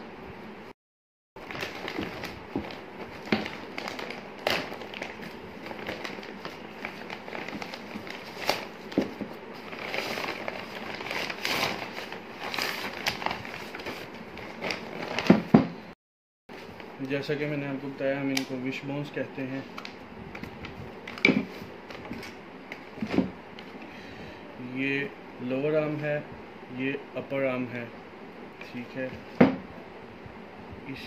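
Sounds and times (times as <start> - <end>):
plastic bags crinkling: 1.4 - 15.5.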